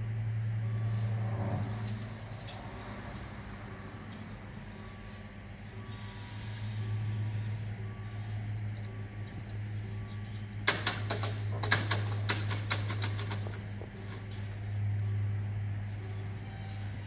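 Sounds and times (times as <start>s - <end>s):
barrier drive hum: 0.0s - 17.0s
electronic warning beeps: 0.6s - 1.4s, 3.0s - 10.6s.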